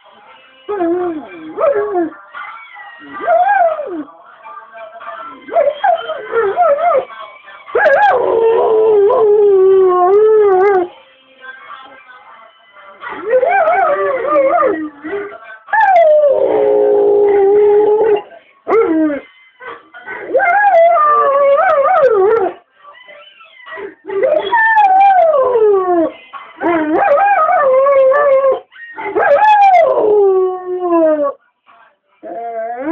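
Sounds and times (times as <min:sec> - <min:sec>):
dog howling on video playback: 0:00.7 - 0:04.2, 0:05.1 - 0:11.0, 0:13.0 - 0:31.4, 0:32.2 - 0:32.9
pet dog howling along: 0:24.1 - 0:31.4.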